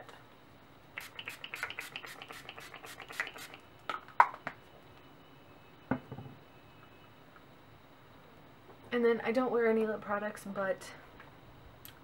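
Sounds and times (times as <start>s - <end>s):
spray bottle misting: 1.0s - 3.6s.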